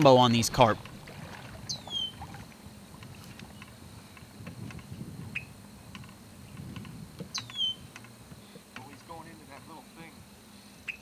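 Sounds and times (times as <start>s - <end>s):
bird chirp: 1.6s - 2.2s, 7.3s - 8.6s.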